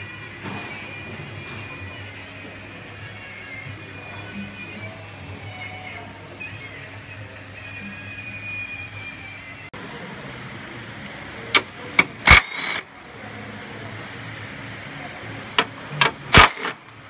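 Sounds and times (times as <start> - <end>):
workshop hum: 0.0 - 17.0
metallic clicks and clanks of hand tools: 15.6 - 16.8.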